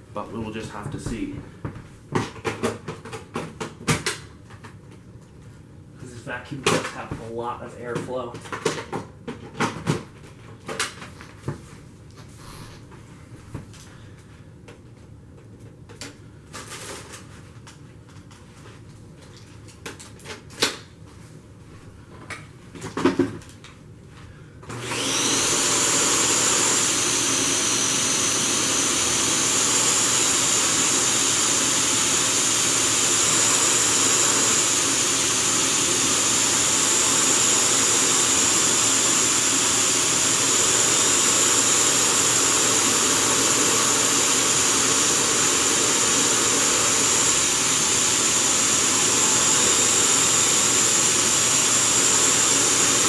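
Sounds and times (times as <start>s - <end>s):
vacuum cleaner whining: 24.6s - 53.0s.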